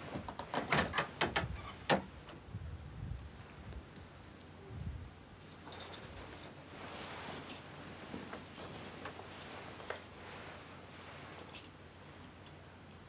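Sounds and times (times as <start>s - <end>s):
clothing rustling: 5.4s - 12.6s
bangles clinking: 5.5s - 10.1s, 11.0s - 12.6s.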